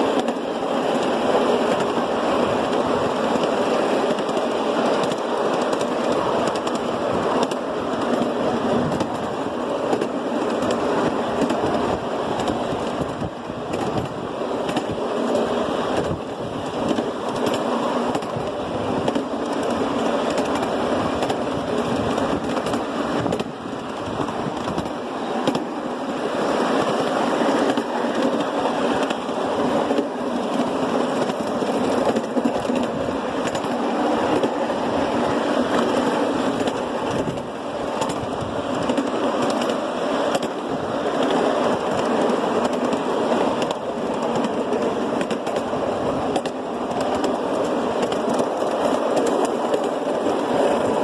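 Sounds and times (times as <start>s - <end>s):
train wheels clattering on rails: 0.0s - 51.0s.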